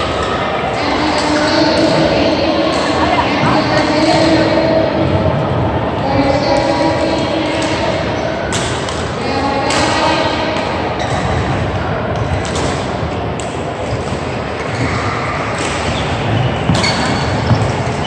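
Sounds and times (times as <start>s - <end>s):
murmur of voices: 0.0s - 18.0s
rackets striking shuttlecocks: 6.3s - 14.8s.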